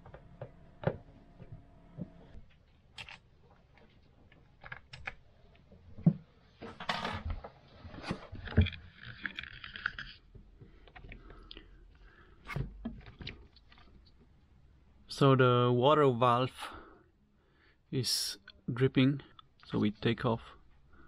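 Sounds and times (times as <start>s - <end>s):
rustling and scraping: 5.8s - 11.4s.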